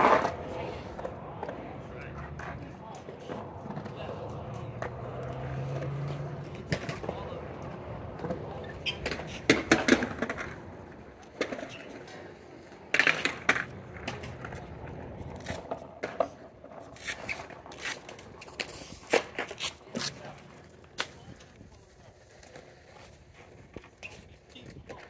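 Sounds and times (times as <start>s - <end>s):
skateboard clacks on concrete: 0.0s - 25.0s.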